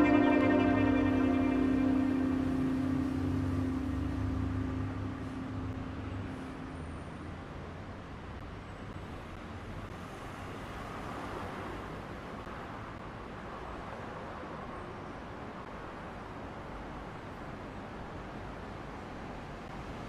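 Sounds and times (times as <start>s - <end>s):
music: 0.0s - 7.1s
distant road traffic hum: 0.0s - 20.0s.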